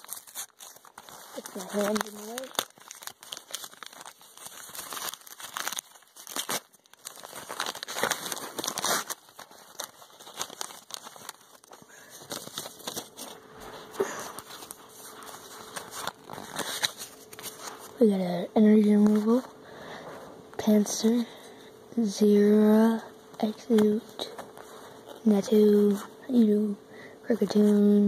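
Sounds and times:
paper crinkling and tearing: 0:00.0 - 0:18.0.

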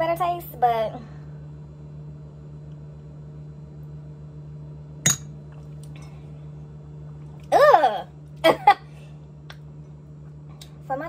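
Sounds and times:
low hum: 0:00.0 - 0:11.0
glass clink on hard surface: 0:05.1 - 0:05.3.

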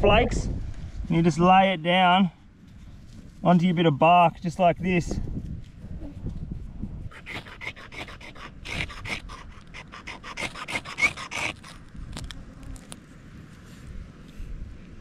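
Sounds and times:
blade rasping on flint: 0:07.0 - 0:13.0.

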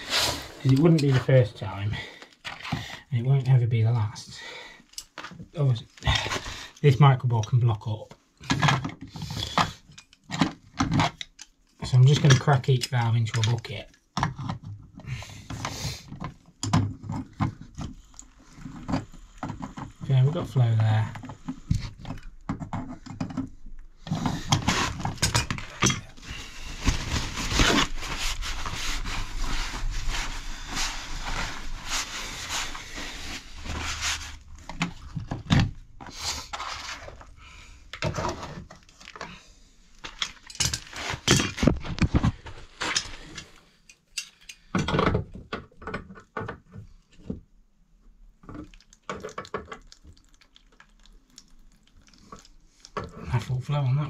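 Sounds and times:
pliers and plastic clattering: 0:40.0 - 0:42.2.

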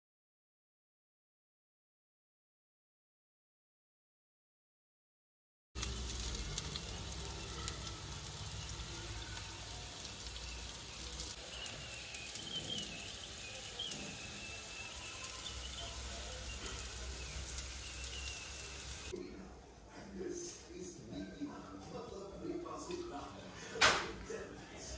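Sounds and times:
chicken sizzling in hot oil: 0:05.8 - 0:19.2.

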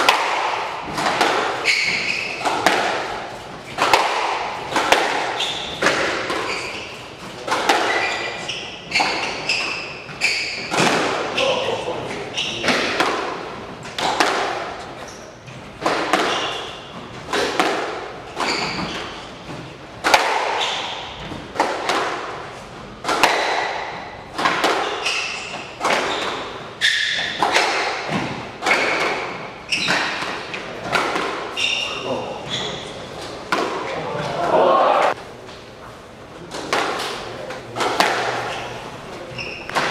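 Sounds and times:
squash ball hitting racquets and walls: 0:00.0 - 0:39.9
shoes squeaking on wooden floor: 0:00.8 - 0:13.0, 0:14.8 - 0:17.5, 0:18.2 - 0:19.8, 0:24.7 - 0:30.9, 0:31.5 - 0:33.3, 0:38.4 - 0:39.9.

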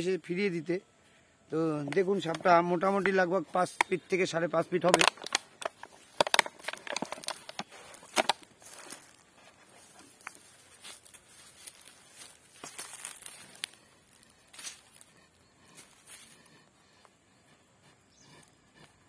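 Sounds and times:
plastic jar handled and set down: 0:04.8 - 0:09.1
dry leaves crackling and rustling: 0:05.0 - 0:15.1.

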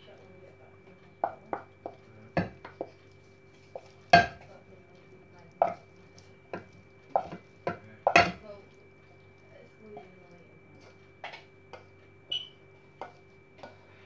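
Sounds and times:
dishes and cutlery clinking: 0:03.7 - 0:04.5, 0:06.5 - 0:08.4.

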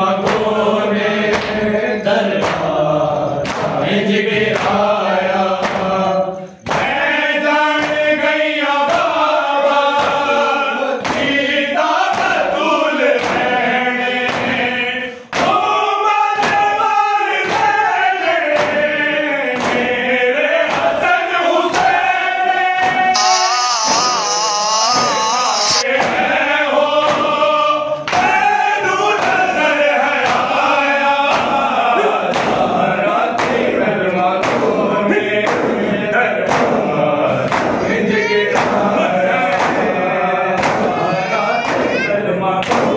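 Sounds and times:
men chanting in unison: 0:00.0 - 0:42.9.

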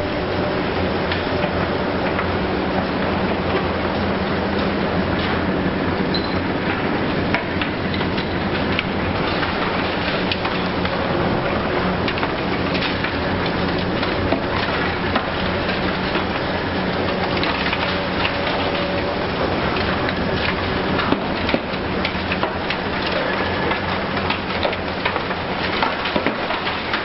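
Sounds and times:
excavator diesel engine running: 0:00.0 - 0:27.0
sharp cracks and crunches: 0:06.6 - 0:27.0
demolition tool crushing material: 0:07.3 - 0:27.0.

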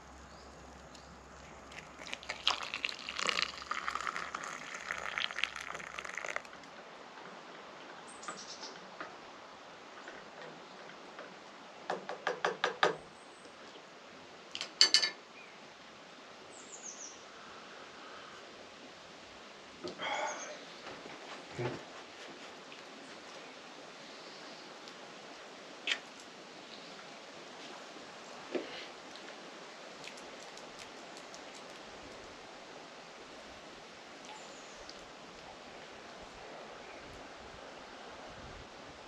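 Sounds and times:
water pouring into cup: 0:00.7 - 0:06.6.

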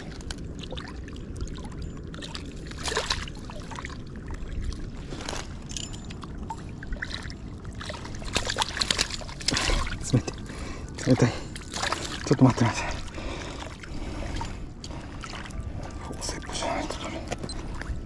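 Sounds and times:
low rumble: 0:00.0 - 0:18.0
water sloshing and splashing: 0:00.0 - 0:18.0.

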